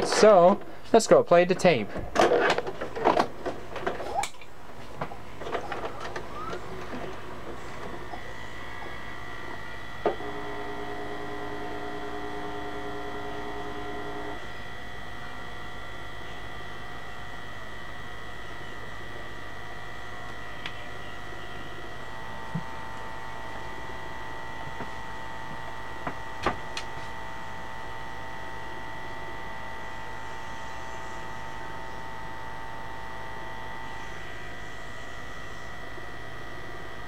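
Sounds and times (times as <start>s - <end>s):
faint high tone and hum: 5.2s - 37.0s
tape mechanism whirring: 5.5s - 14.6s.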